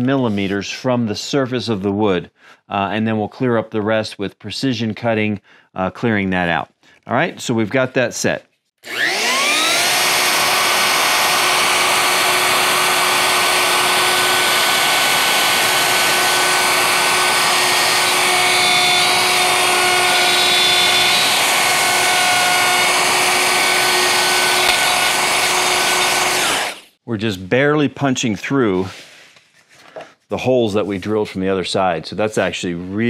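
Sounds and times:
router whining while cutting wood: 8.8 - 27.0.

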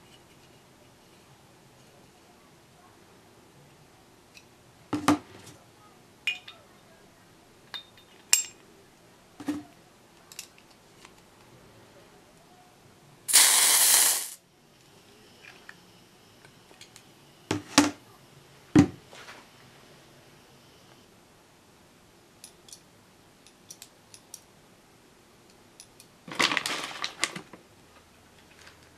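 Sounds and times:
gas hissing: 13.3 - 14.4.

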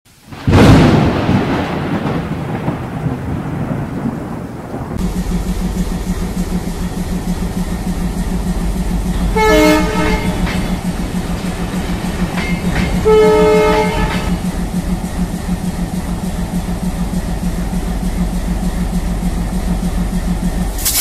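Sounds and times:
loud boom rumbling: 0.3 - 7.1
train horn: 9.2 - 10.9, 12.5 - 14.6
toy train clattering on track: 20.7 - 21.0.

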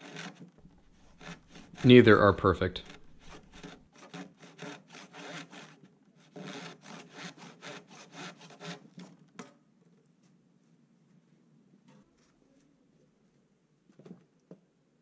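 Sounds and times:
handsaw cutting wood: 0.0 - 9.1.

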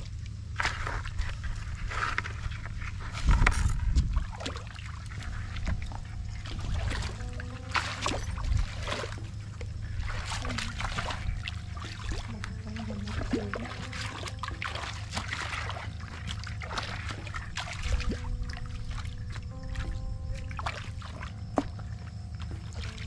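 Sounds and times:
legs wading through muddy water: 0.0 - 23.0.

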